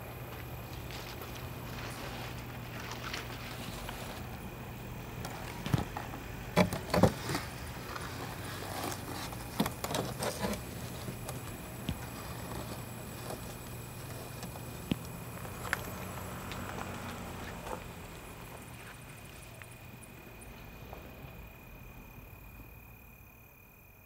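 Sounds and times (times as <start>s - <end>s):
steady background hum: 0.0s - 24.0s
hands rustling dry leaves: 0.3s - 19.7s.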